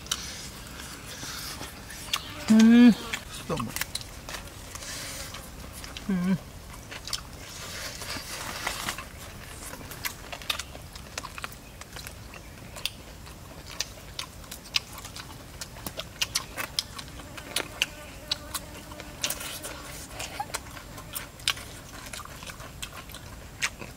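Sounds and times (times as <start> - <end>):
wet chewing smacks: 9.0 - 23.9.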